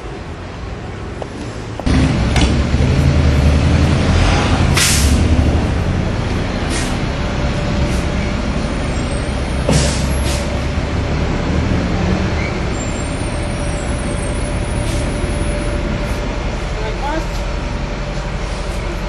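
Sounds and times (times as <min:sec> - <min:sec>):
heavy vehicle engine rumbling: 0:00.0 - 0:19.0.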